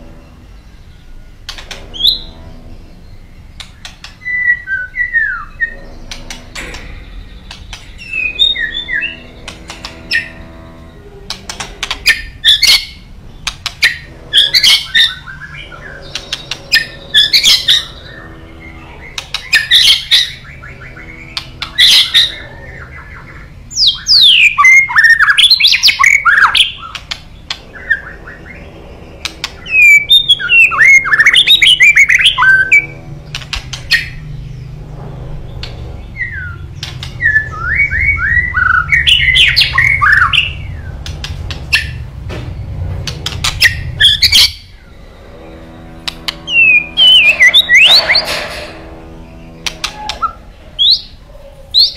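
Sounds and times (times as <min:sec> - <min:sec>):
bird fast whistled notes: 0:46.4 - 0:48.4.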